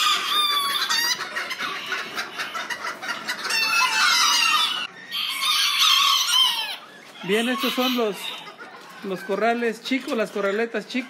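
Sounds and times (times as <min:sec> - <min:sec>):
chickens calling and clucking: 0:00.0 - 0:11.0
rooster crowing: 0:03.5 - 0:08.4.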